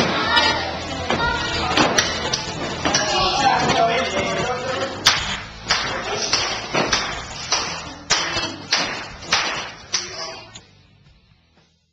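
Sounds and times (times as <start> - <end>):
sharp slaps echoing in a hall: 5.0 - 10.3.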